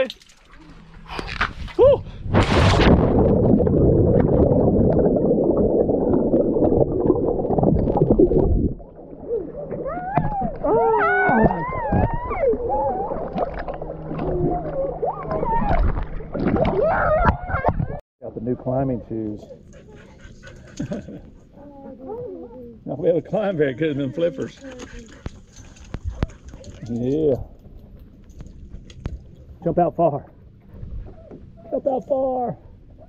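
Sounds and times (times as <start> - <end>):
underwater bubbling and rushing: 0.4 - 18.0
splash into river: 2.3 - 4.5
water lapping: 5.4 - 18.0, 18.7 - 33.0.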